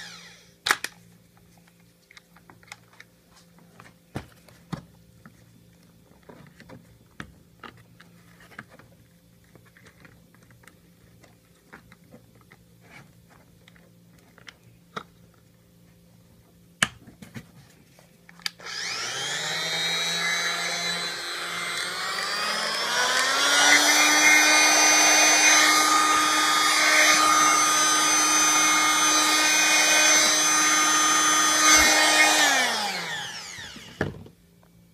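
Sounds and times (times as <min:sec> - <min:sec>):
multi-tool motor whining: 0:00.0 - 0:00.5, 0:18.5 - 0:34.2.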